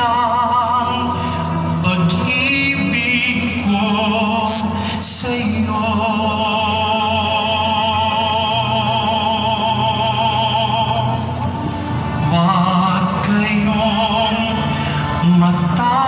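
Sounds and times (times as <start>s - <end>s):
hymn over loudspeakers: 0.0s - 16.0s.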